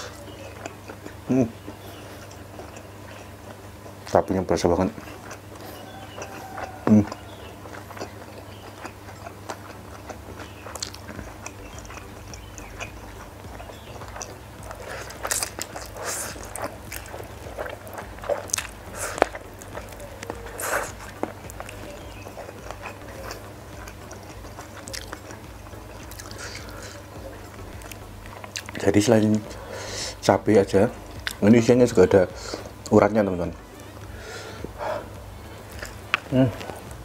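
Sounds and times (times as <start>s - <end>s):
person chewing and slurping noodles: 5.0s - 30.2s, 33.6s - 37.0s.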